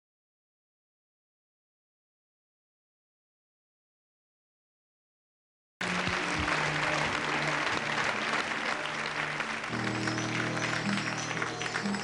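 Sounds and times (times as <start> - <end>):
audience applauding: 5.8 - 12.0
stage music: 5.8 - 12.0
deep sustained chord: 9.7 - 11.9.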